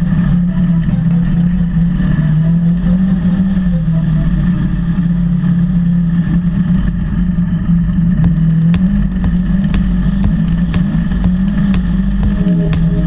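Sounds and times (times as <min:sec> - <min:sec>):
engine running steadily: 0:00.0 - 0:13.0
sharp knocks: 0:08.3 - 0:13.0.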